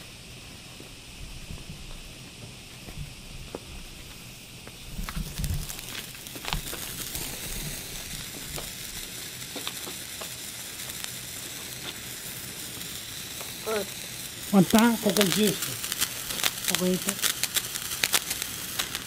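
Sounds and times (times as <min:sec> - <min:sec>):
fireworks hissing: 0:00.0 - 0:19.0
sparks crackling: 0:00.0 - 0:19.0.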